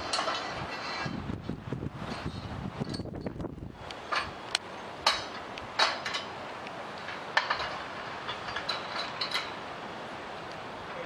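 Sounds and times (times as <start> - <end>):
metallic clanks on scaffolding: 0.0 - 1.2, 4.0 - 9.7.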